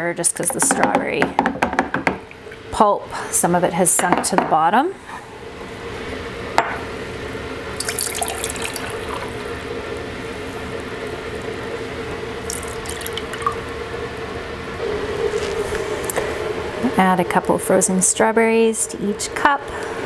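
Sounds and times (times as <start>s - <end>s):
liquid pouring into glass: 7.8s - 9.5s, 12.4s - 13.7s.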